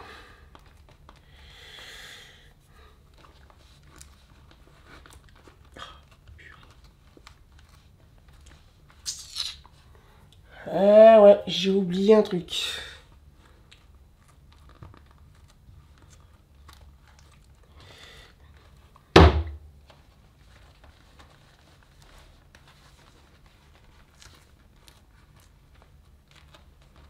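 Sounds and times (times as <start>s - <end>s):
hands handling vinyl inflatable: 13.0s - 27.0s
loud thump: 19.2s - 19.6s.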